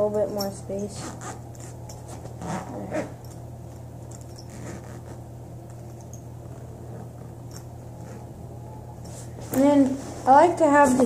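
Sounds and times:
steady low hum: 0.0s - 11.0s
fabric bag rustling: 1.0s - 3.4s.

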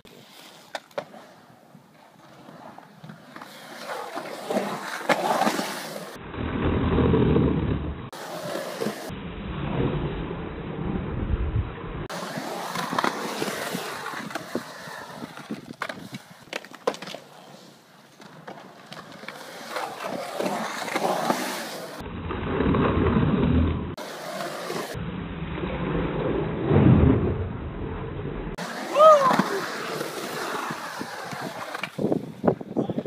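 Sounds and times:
skateboard wheels rolling on concrete: 0.0s - 33.0s
skateboard clacks: 12.7s - 17.3s.

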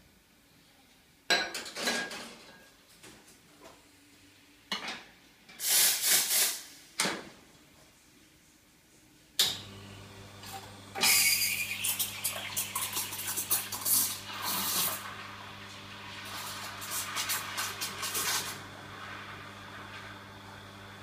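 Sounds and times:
loud hiss of steam: 5.6s - 6.8s
steady pump hum: 9.4s - 21.0s.

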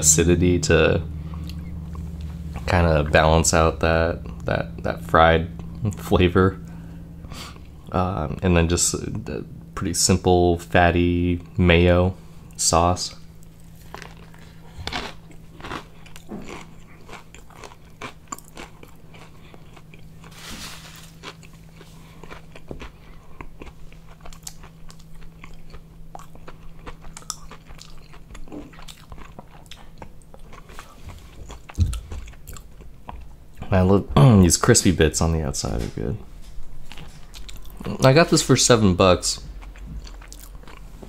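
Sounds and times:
crunchy chewing: 12.4s - 33.7s, 36.8s - 41.0s.

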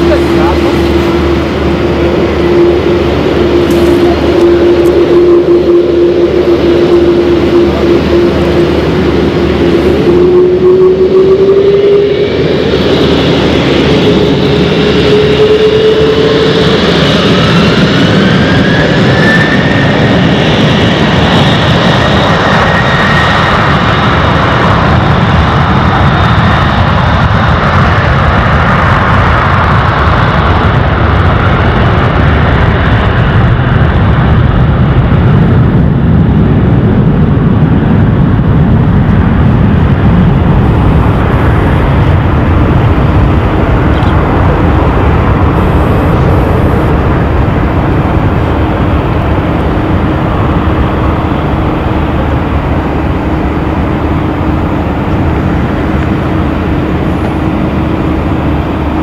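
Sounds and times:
jet engines whining and roaring: 0.0s - 59.0s.

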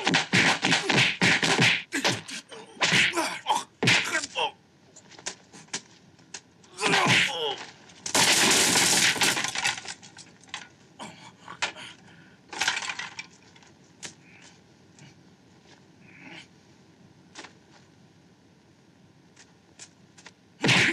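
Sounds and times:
falling debris clattering: 6.8s - 10.6s, 12.6s - 13.3s
wood splintering crash: 8.0s - 10.0s.

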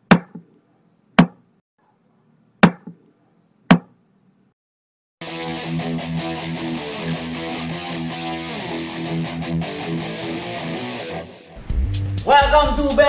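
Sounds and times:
sharp knocks: 0.0s - 0.5s, 1.2s - 1.4s, 2.6s - 3.0s, 3.7s - 4.0s
electric guitar music: 5.2s - 12.2s.

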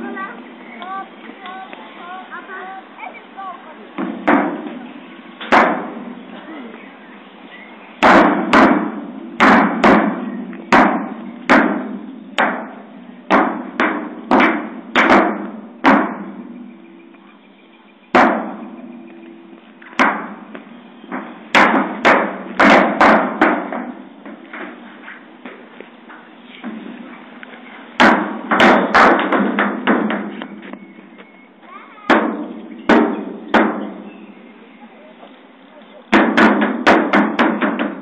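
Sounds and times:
footsteps on metal slide: 18.5s - 34.0s.

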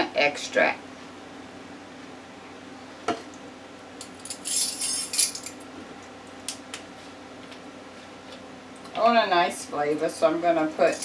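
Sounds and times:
metal measuring spoons rattling: 4.2s - 5.6s.

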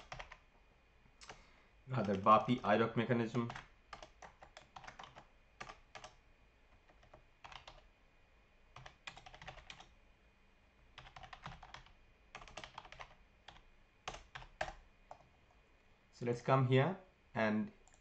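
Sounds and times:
faint keyboard typing: 0.0s - 0.5s, 1.1s - 7.9s, 8.7s - 10.0s, 10.8s - 15.6s, 17.7s - 18.0s.

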